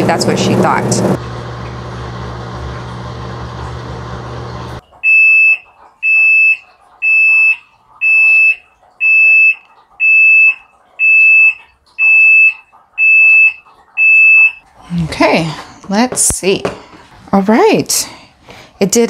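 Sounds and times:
washing machine humming: 0.0 - 19.0.

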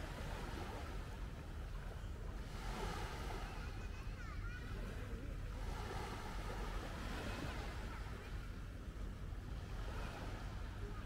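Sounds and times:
sea washing over sandy beach: 0.0 - 1.7.

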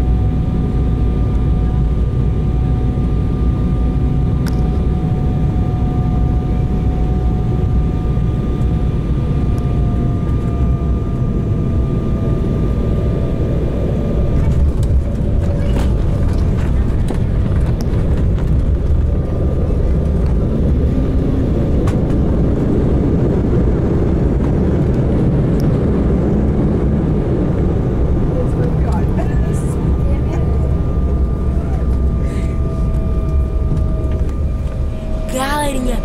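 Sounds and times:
engine and airflow rumble: 0.0 - 36.0
thin engine whine: 0.0 - 36.0.

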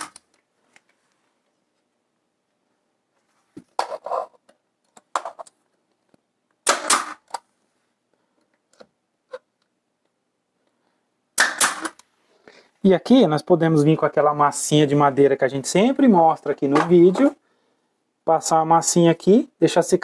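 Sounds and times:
nail gun firing: 6.6 - 7.4, 11.4 - 12.0.

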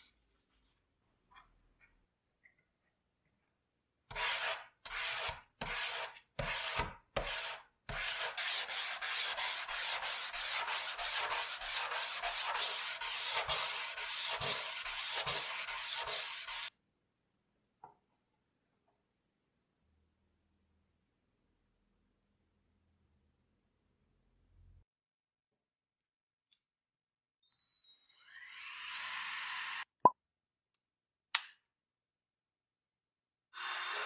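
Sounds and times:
sandpaper rubbing on steel blade: 4.1 - 16.7.

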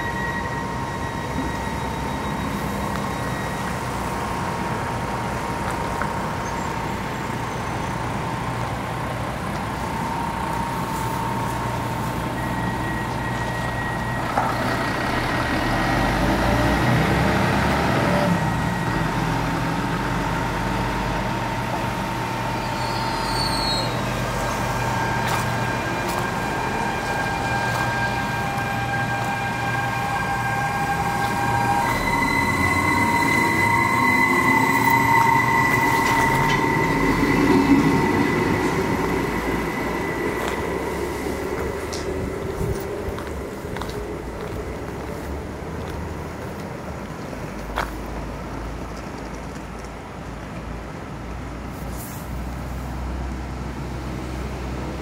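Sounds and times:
thin whining tones: 0.0 - 8.5, 18.1 - 45.1
electric train humming: 0.0 - 51.7.

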